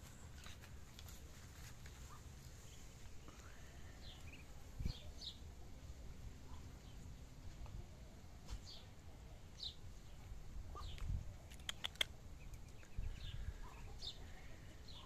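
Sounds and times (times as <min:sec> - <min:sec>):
ducklings peeping: 0:04.0 - 0:05.4, 0:09.6 - 0:15.0.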